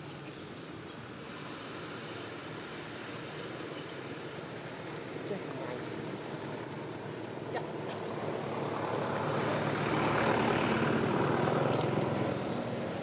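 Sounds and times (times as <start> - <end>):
engine rumble passing by: 4.0 - 13.0.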